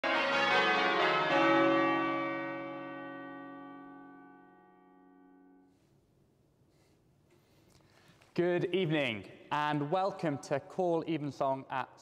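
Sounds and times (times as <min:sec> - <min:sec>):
church bells ringing: 0:00.0 - 0:05.8.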